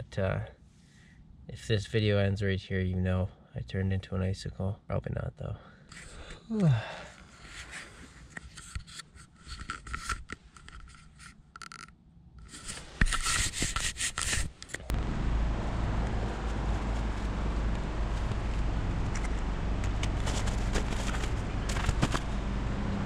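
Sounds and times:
scraping rustling handling noise: 0:07.3 - 0:14.9, 0:18.0 - 0:22.4
low rumble: 0:14.8 - 0:23.0.

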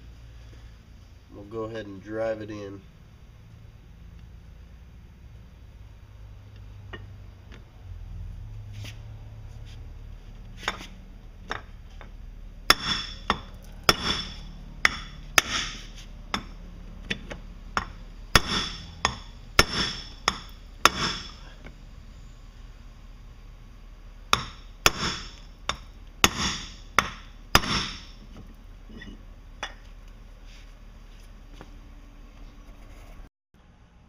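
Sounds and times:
hammer striking metal: 0:12.7 - 0:16.6, 0:17.8 - 0:21.4, 0:24.3 - 0:28.2.

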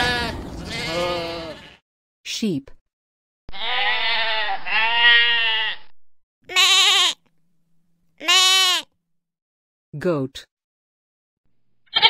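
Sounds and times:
sheep bleating: 0:00.0 - 0:01.8, 0:03.5 - 0:05.9, 0:06.5 - 0:07.2, 0:08.2 - 0:08.9.

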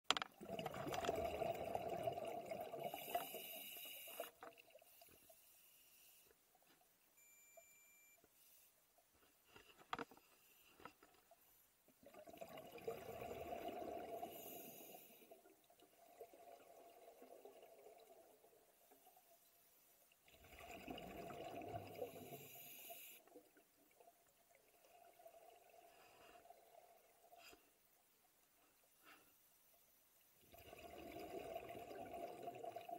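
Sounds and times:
underwater air bubbling: 0:00.4 - 0:05.0, 0:12.0 - 0:19.2, 0:20.3 - 0:27.3, 0:30.5 - 0:32.9
faint hiss: 0:02.8 - 0:11.9, 0:14.2 - 0:15.4, 0:21.9 - 0:23.5, 0:27.2 - 0:30.6.

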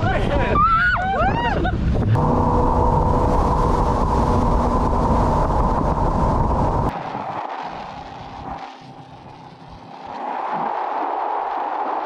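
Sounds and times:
jet boat engine drone: 0:01.8 - 0:10.8.

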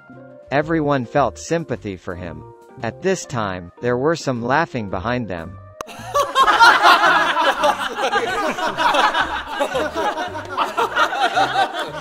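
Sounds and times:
background music with bass line: 0:00.0 - 0:12.0
group of people laughing: 0:05.9 - 0:12.0.

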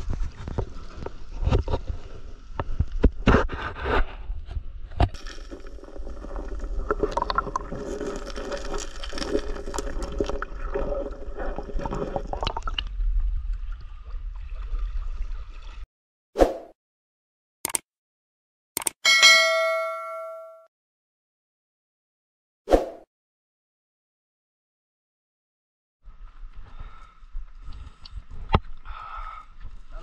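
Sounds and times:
water sloshing and gurgling: 0:04.9 - 0:15.9
net hauled out of water: 0:05.2 - 0:12.2.

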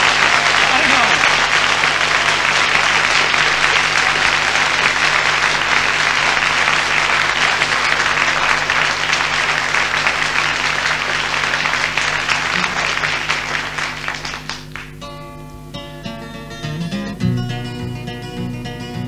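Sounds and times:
audience applauding: 0:00.0 - 0:15.1.

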